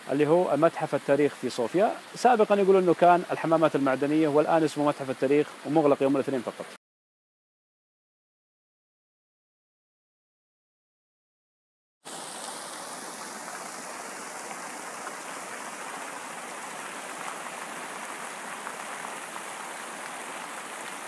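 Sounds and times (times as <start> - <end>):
fountain water splashing: 0.0 - 6.8, 12.1 - 21.0.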